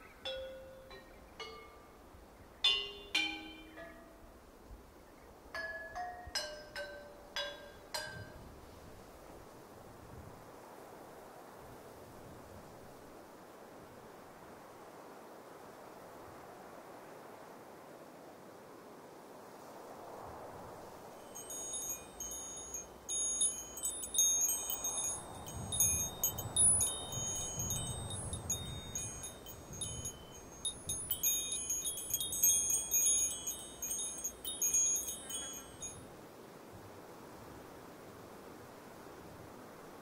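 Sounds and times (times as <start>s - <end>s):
wind chimes tinkling: 2.7s - 4.2s, 21.2s - 36.1s.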